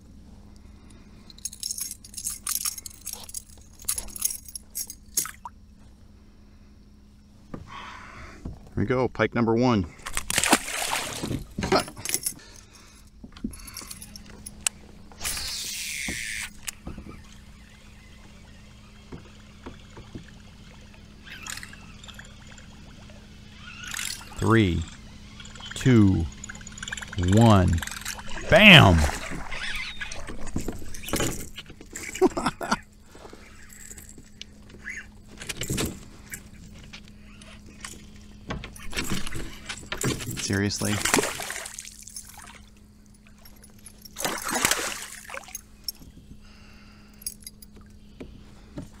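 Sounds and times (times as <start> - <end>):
steady low hum: 0.0 - 49.0
fishing tackle clinking and knocking: 1.2 - 5.5, 11.3 - 14.7, 23.8 - 40.9, 47.1 - 48.0.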